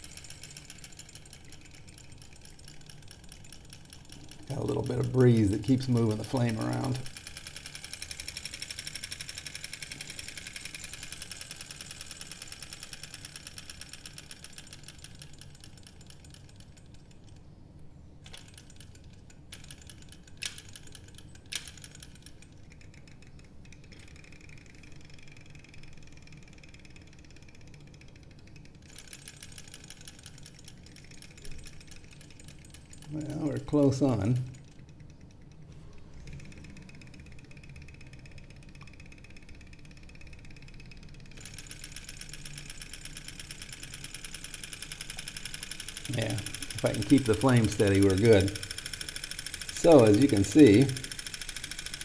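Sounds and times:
sharp clicks: 30.2s - 52.0s.

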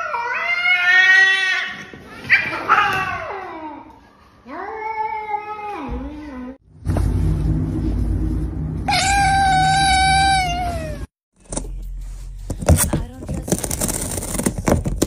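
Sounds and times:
cat chewing cardboard box: 13.3s - 15.0s.

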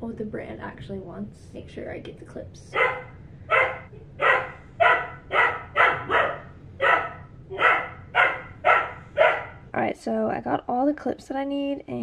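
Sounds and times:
puppy barking: 2.8s - 9.6s.

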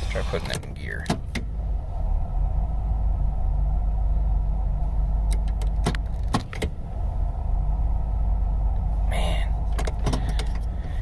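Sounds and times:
van engine idling rough: 0.0s - 11.0s
gear shifter clicks: 0.2s - 1.5s, 5.3s - 6.8s, 9.7s - 10.8s.

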